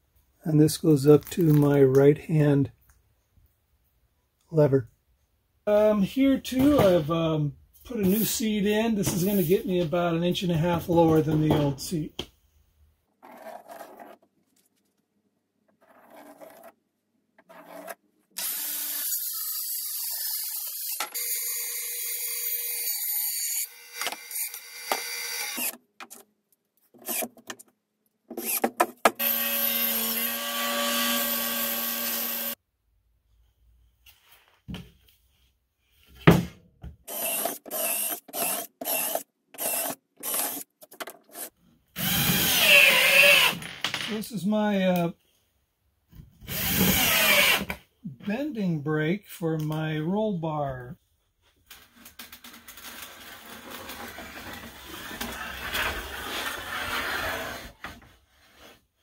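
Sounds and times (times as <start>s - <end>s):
cordless drill driving screws: 18.4s - 25.8s, 28.4s - 32.6s, 37.1s - 40.7s, 41.3s - 43.6s, 46.5s - 47.7s.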